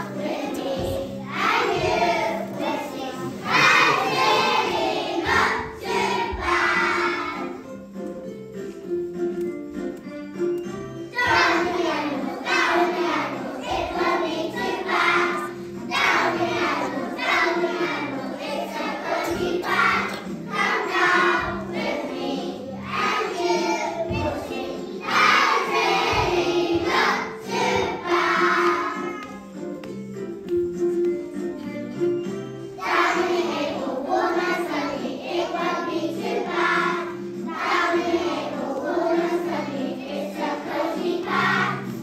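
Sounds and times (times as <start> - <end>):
children singing in chorus: 0.0 - 7.6, 11.2 - 29.2, 32.8 - 42.0
instrumental accompaniment with beat: 3.4 - 17.8, 23.0 - 34.8.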